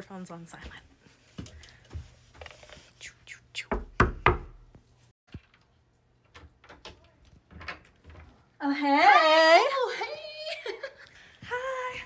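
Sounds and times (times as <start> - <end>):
knocking on wooden door: 3.8 - 4.6.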